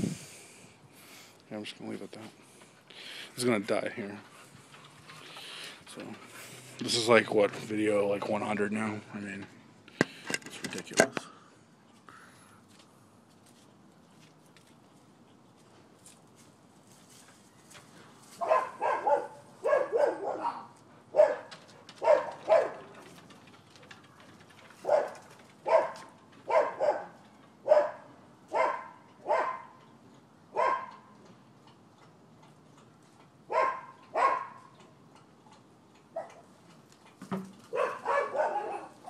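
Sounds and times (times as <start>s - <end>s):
dogs barking: 18.4s - 23.1s, 24.8s - 29.9s, 30.5s - 31.2s, 33.5s - 34.7s, 36.1s - 36.5s, 37.7s - 39.0s.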